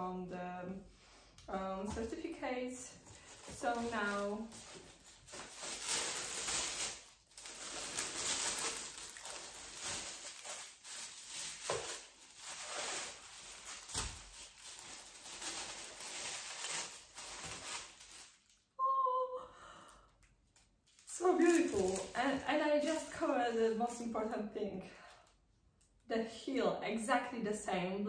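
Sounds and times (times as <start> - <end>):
tissue paper rustling: 3.1 - 18.6, 21.0 - 24.0.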